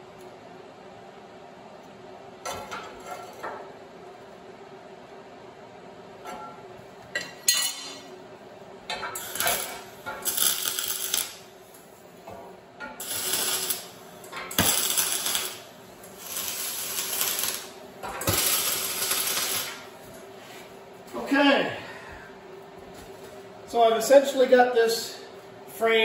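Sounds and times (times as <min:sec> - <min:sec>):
welder tack-welding: 0:08.9 - 0:20.2.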